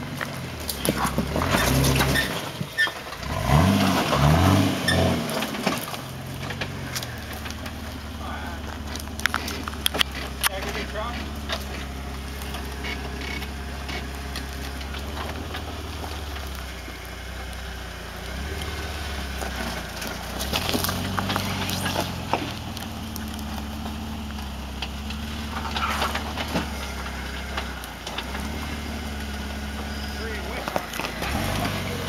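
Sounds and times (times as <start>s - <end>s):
engine running at low speed: 0.0s - 32.0s
tyres cracking on rock: 0.1s - 32.0s.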